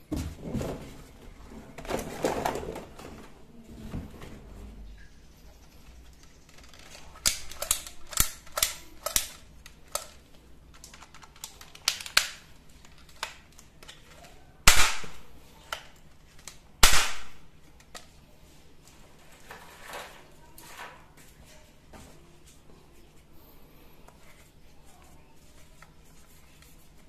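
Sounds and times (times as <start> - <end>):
plastic toy gun clicks: 6.5 - 10.2, 10.8 - 18.1
loud sharp cracks: 14.6 - 15.2, 16.8 - 17.5.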